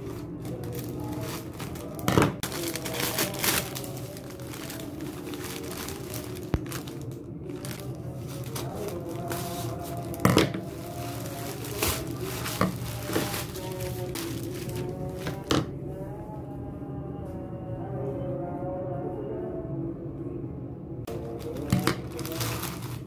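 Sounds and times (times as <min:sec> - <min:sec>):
plastic bag crinkling: 0:00.0 - 0:15.5, 0:21.1 - 0:23.0
soft background music: 0:00.0 - 0:23.0.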